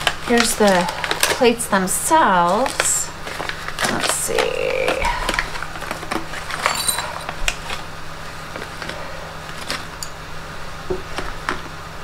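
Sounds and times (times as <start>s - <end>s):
metal plates clinking: 6.6s - 7.4s.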